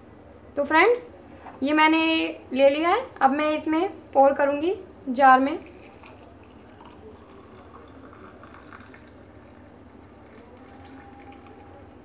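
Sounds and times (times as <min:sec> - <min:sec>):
tea pouring through strainer: 0:05.6 - 0:12.0.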